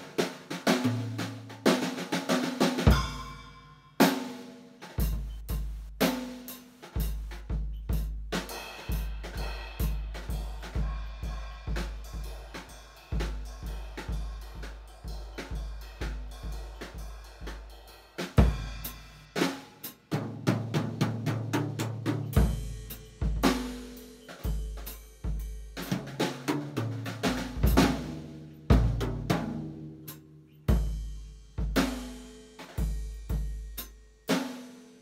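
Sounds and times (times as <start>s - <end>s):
bass drum: 2.8s - 3.4s, 5.0s - 17.6s
cymbal crashes: 2.9s - 4.3s.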